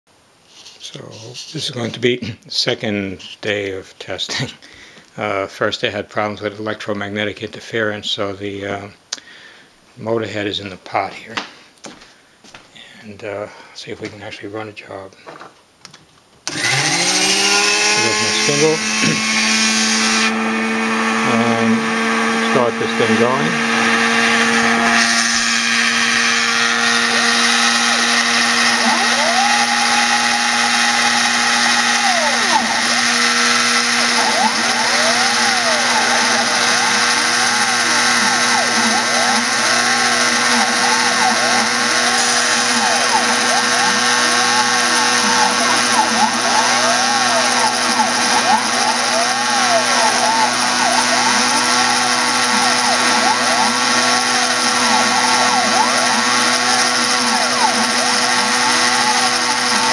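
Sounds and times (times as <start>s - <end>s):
flexible-shaft tool whining: 16.5s - 59.9s
stepper motors singing pitch sweeps: 28.6s - 59.9s.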